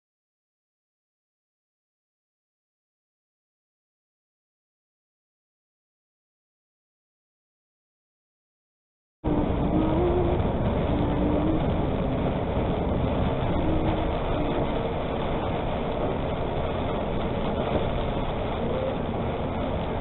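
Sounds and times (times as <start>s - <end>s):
truck engine and road noise: 9.2s - 20.0s.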